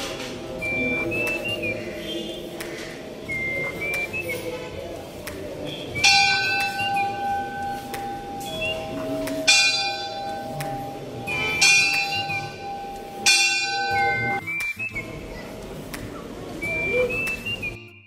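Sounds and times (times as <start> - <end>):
brass bell ringing: 6.0 - 14.4
lower-pitched bell ringing: 6.0 - 14.4.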